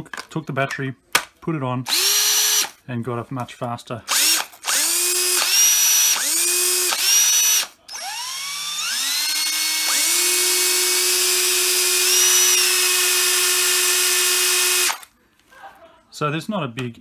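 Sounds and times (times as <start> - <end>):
cordless drill motor whine: 1.9 - 2.7, 4.1 - 15.1.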